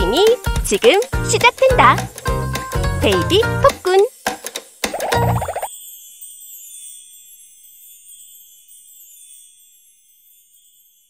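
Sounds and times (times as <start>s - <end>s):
high twinkling chime shimmer: 5.0s - 11.0s.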